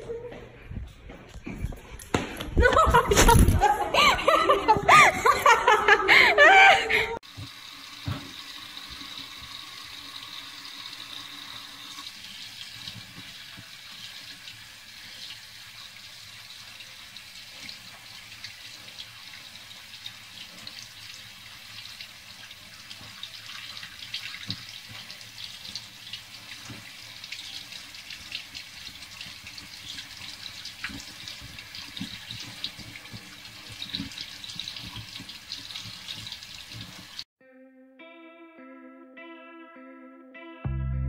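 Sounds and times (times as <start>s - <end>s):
faucet water running into sink: 7.2s - 37.3s.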